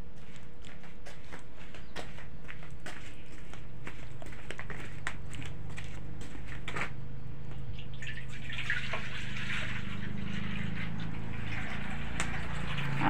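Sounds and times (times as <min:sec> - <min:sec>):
steady low hum: 0:00.0 - 0:08.0
milk pouring into a pot: 0:07.8 - 0:13.0.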